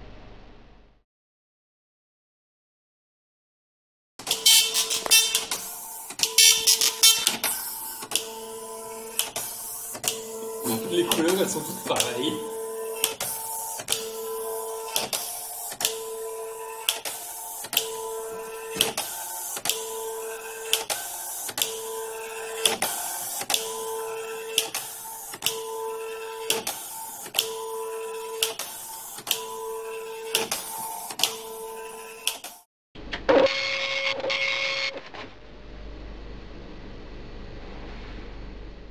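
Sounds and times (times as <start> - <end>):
printer sharp click: 4.2 - 8.3
dot matrix printer printing: 4.2 - 32.6.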